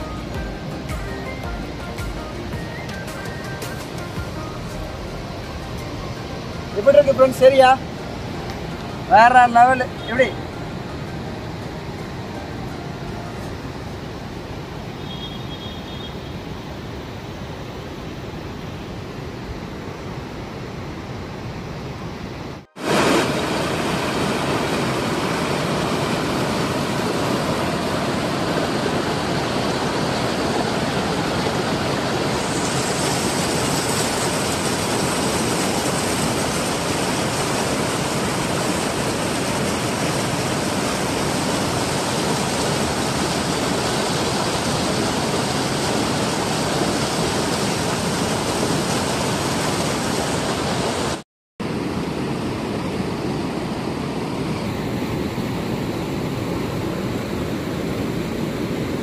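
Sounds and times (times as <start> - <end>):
river rapids rushing: 0.0 - 21.5, 22.1 - 59.0.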